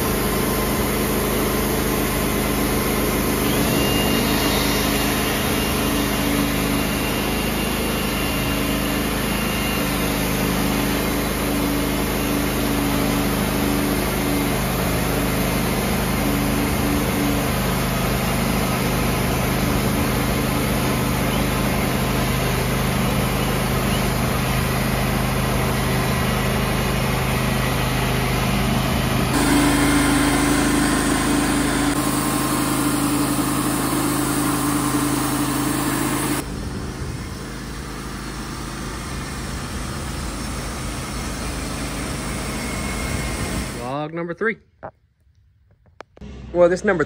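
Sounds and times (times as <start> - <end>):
band sawmill engine humming: 0.0 - 43.9, 46.2 - 47.0
band blade sawing log: 29.3 - 36.4.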